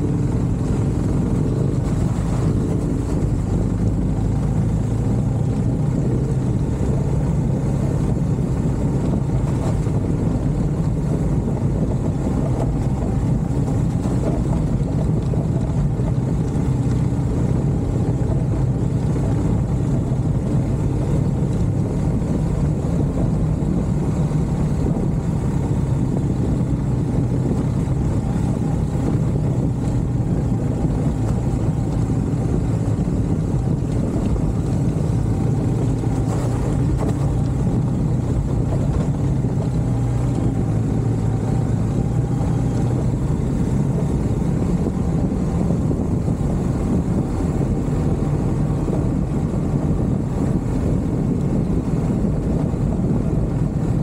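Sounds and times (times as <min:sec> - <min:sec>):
vehicle running rumble: 0:00.0 - 0:54.0
wind noise: 0:00.0 - 0:54.0.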